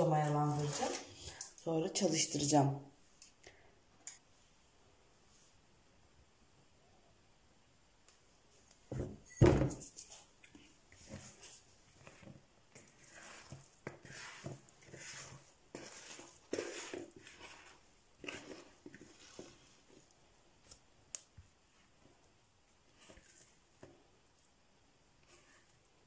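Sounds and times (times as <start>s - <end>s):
dough scraped from plastic bowl: 0.2s - 1.1s, 11.0s - 20.1s.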